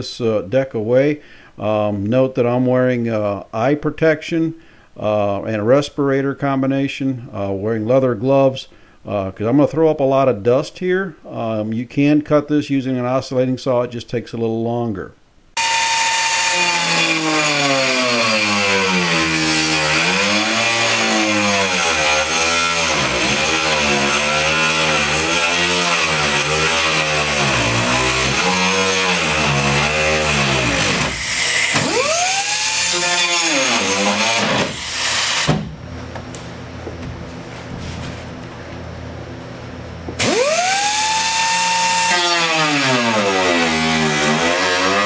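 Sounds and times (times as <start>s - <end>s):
diamond saw motor whining: 15.6s - 35.5s, 40.2s - 45.0s.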